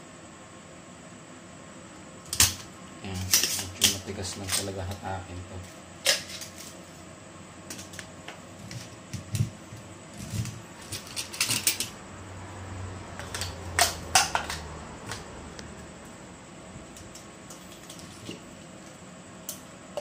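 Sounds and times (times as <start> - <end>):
low steady hum: 0.0 - 20.0
desoldering pump snaps: 2.3 - 5.1.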